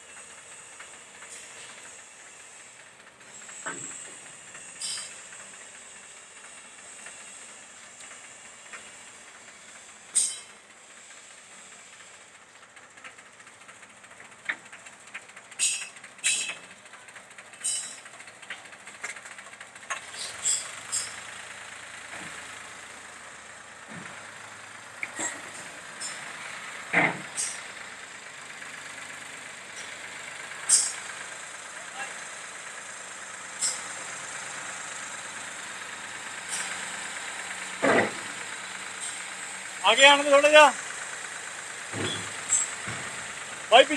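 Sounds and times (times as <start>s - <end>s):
tractor diesel engine idling: 0.0s - 43.9s
steel sheets clanking: 10.2s - 10.5s, 15.6s - 16.7s, 17.6s - 18.1s.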